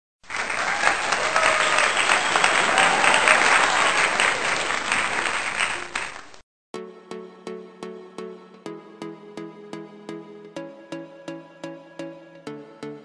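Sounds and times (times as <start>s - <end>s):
crowd applauding: 0.2s - 6.4s.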